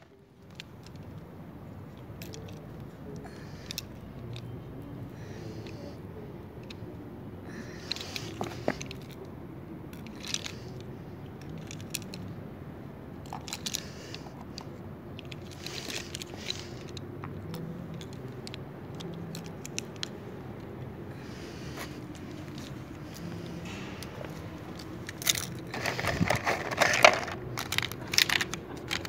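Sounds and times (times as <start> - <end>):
plastic pens clicking and rattling: 0.1 - 4.5, 5.2 - 6.0, 7.5 - 9.3, 9.9 - 12.4, 13.2 - 20.7, 21.3 - 29.0
pens clattering on floor: 21.3 - 29.0.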